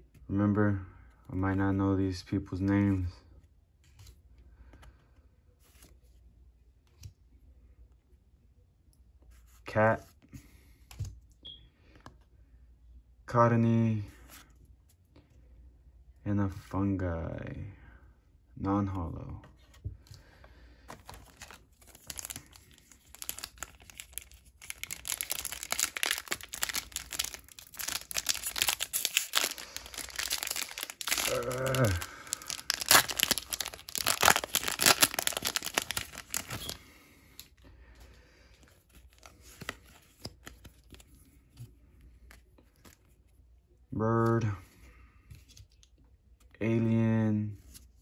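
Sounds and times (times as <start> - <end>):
plastic wrapper tearing and crinkling: 21.0 - 36.8.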